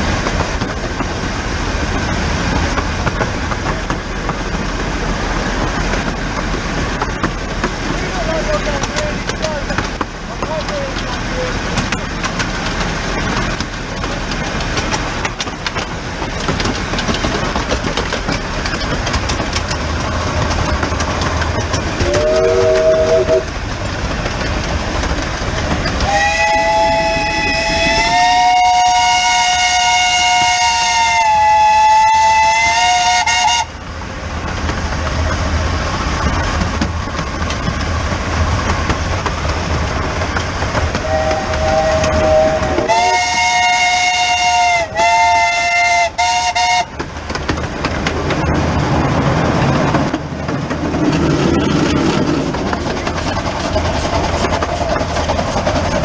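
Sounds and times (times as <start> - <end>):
steam locomotive rail clatter: 0.0 - 56.0
steam whistle: 22.0 - 23.5, 26.0 - 33.7, 41.0 - 46.9.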